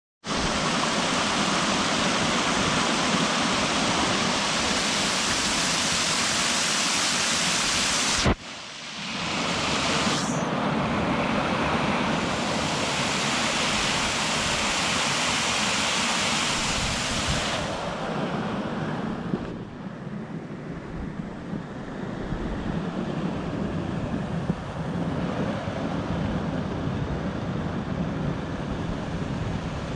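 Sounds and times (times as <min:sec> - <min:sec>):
waterfall rushing over rocks: 0:00.3 - 0:10.2, 0:12.2 - 0:18.0.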